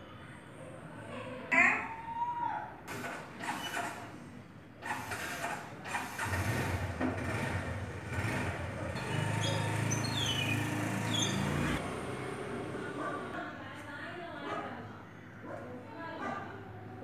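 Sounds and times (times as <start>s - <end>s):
engine humming: 6.2s - 13.0s.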